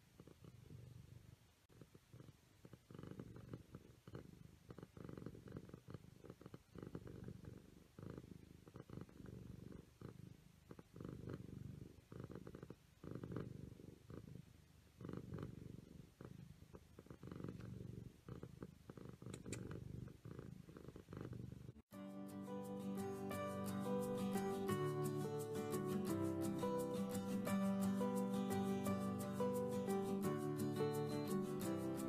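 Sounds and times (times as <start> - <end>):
cat purring: 0.0 - 21.9
music: 21.9 - 32.0.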